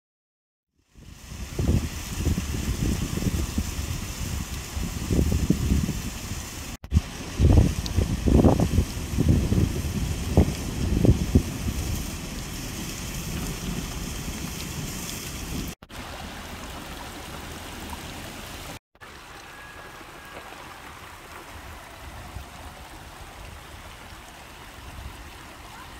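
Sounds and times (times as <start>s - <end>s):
water rushing down rocks: 0.8s - 25.9s.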